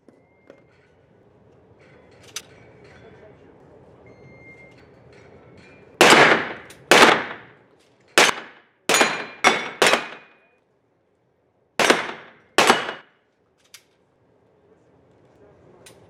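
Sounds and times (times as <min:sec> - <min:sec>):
short faint beep: 0:04.0 - 0:04.9
pistol shots echoing indoors: 0:06.0 - 0:07.6, 0:08.2 - 0:10.4, 0:11.8 - 0:13.2.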